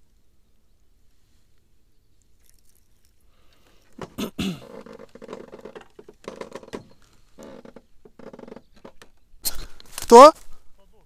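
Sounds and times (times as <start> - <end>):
small taps and rustles: 3.8 - 10.5.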